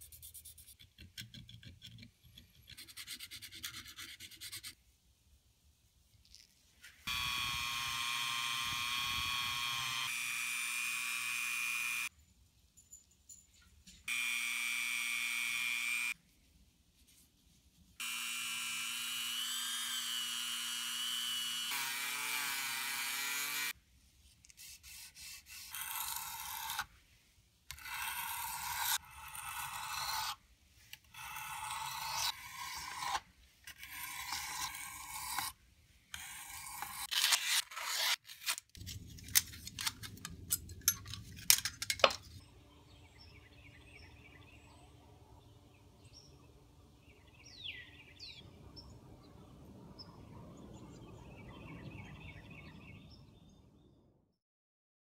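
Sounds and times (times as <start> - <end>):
rotary tool grinding metal: 7.1 - 12.1, 18.0 - 23.8, 25.2 - 26.9, 27.7 - 30.4, 31.1 - 38.6
knife blade scraping on whetstone: 31.3 - 35.6, 36.2 - 38.6.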